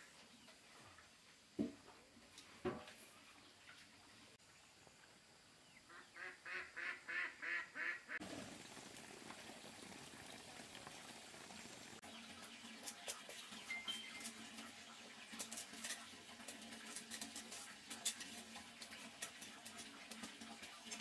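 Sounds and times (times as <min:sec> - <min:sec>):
duck quacking: 0:05.9 - 0:08.2.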